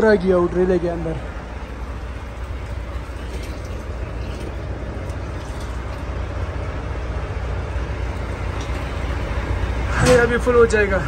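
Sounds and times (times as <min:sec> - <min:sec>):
diesel engine idling: 0:00.0 - 0:11.0
water running into a tank: 0:01.5 - 0:06.6.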